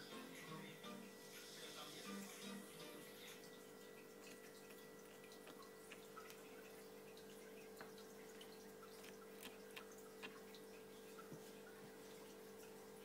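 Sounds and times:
aquarium equipment hum: 0:00.0 - 0:13.0
water dripping clicks: 0:03.4 - 0:13.0.

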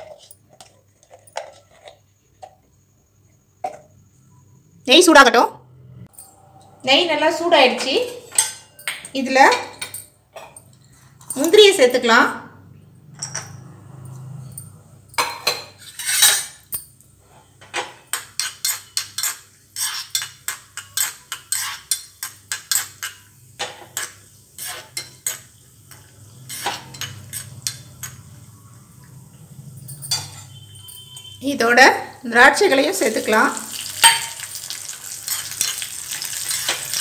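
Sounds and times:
low sizzle: 0:32.2 - 0:37.0
spoon tapping metal ladle: 0:33.6 - 0:35.8.

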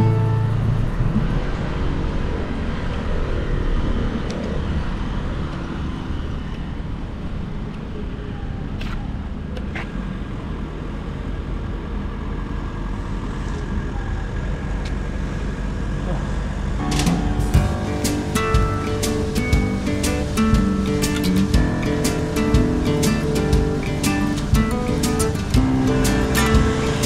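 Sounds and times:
low rumble: 0:00.0 - 0:08.4, 0:16.5 - 0:27.0
cars passing: 0:00.0 - 0:27.0.

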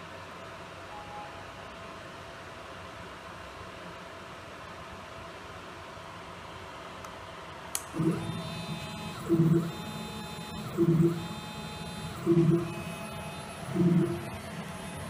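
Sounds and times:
thin high tone: 0:00.9 - 0:01.7
stepper motors humming: 0:07.8 - 0:15.0.

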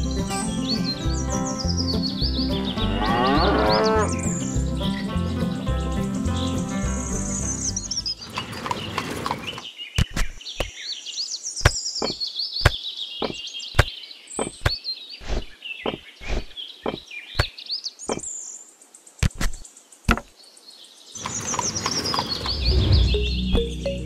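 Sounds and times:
high chirping: 0:11.6 - 0:17.5.

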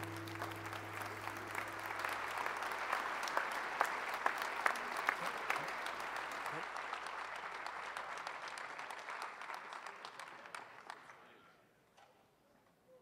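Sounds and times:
acoustic guitar chord: 0:00.0 - 0:02.7
audience applauding: 0:00.0 - 0:11.3.

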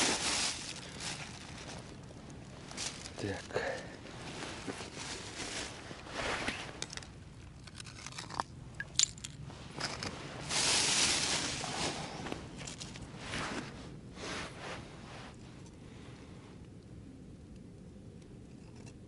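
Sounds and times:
scraping and crunching: 0:00.0 - 0:13.8.

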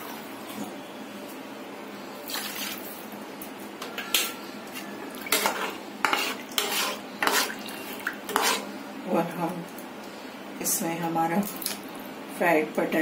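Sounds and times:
stirring watery gravy: 0:05.1 - 0:08.7
spatula scraping and clinking pan: 0:05.3 - 0:07.6, 0:08.3 - 0:08.7.

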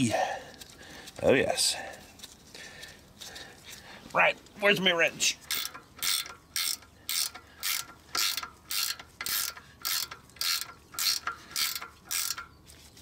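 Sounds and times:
ratchet wrench clicking: 0:05.4 - 0:12.5.

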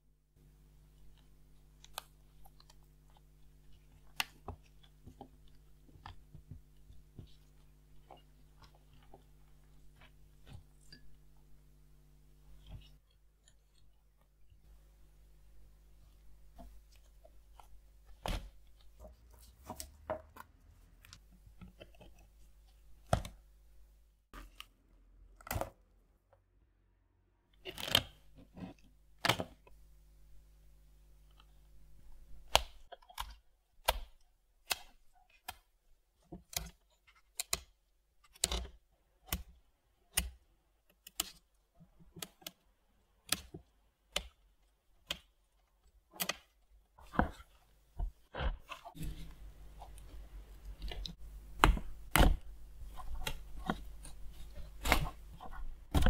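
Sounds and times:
small parts clicking and knocking: 0:32.4 - 0:44.4.

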